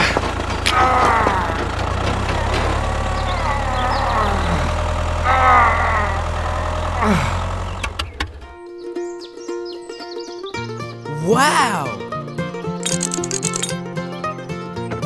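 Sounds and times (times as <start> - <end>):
tractor engine idling: 0.0 - 8.6, 12.8 - 13.7.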